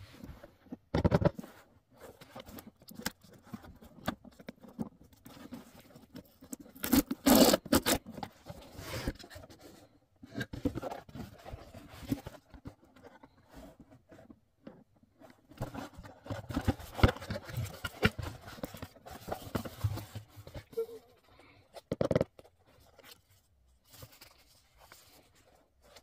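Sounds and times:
cardboard ripping: 6.8 - 8.0
cardboard scraping and rustling: 15.2 - 21.1.

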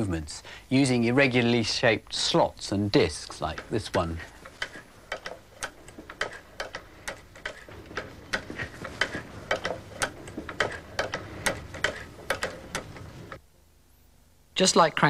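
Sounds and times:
sewing machine mechanism clicking: 3.3 - 13.4.

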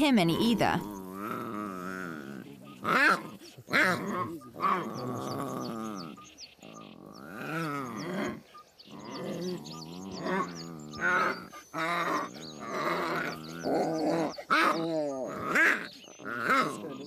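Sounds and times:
lion cubs growling and snarling: 0.0 - 17.0.

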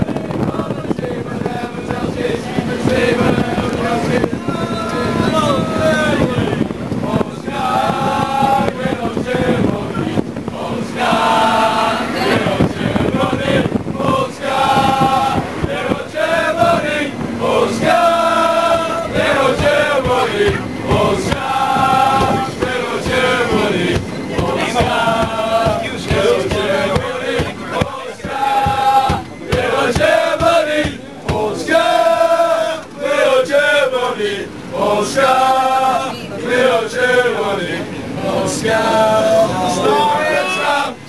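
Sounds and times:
rhythmic thumps: 0.0 - 32.3
crowd singing a chant: 0.0 - 41.0.

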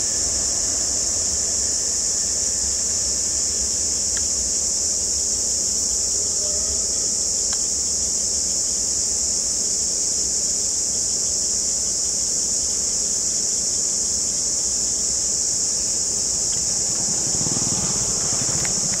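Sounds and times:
insects chirring: 0.0 - 19.0
diesel locomotive engine rumble: 15.8 - 19.0.

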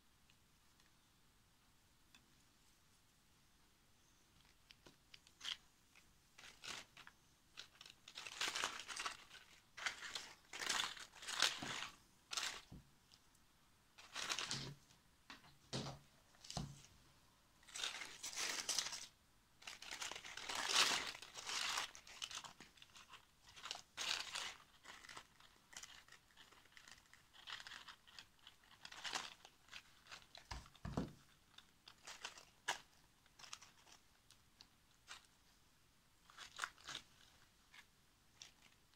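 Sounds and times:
dry husks rustling and crinkling: 4.0 - 13.3, 14.0 - 14.9, 17.6 - 35.4, 36.2 - 38.9.

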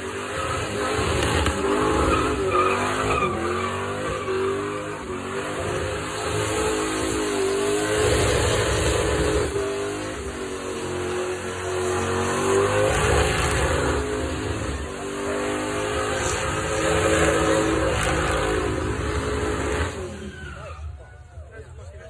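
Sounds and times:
car engine revving high: 0.0 - 21.0
tyres squealing: 0.2 - 6.2.

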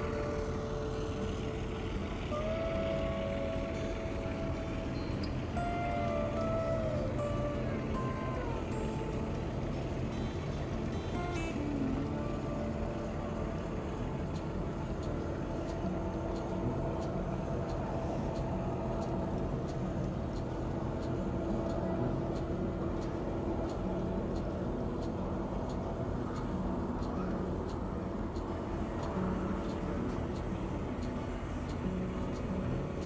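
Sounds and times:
steady hum: 0.0 - 33.0.

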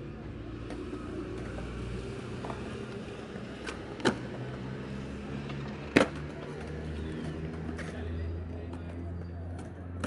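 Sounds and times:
skateboard wheels rolling on concrete: 0.0 - 10.0
skateboard clacking on pavement: 5.4 - 10.0.

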